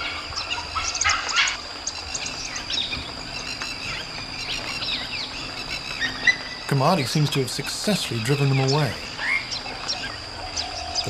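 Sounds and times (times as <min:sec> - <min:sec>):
wild dogs squeaking and chirping: 0:00.0 - 0:06.8
high insect drone: 0:00.0 - 0:11.0.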